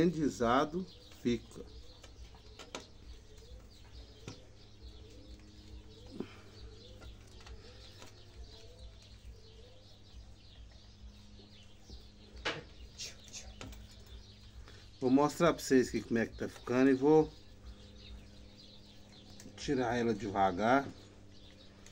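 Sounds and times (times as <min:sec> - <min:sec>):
faint pigeon cooing: 0:00.0 - 0:21.9
steady low hum: 0:00.0 - 0:21.9
soft clicks of branches and wire: 0:01.0 - 0:10.8, 0:18.0 - 0:21.9.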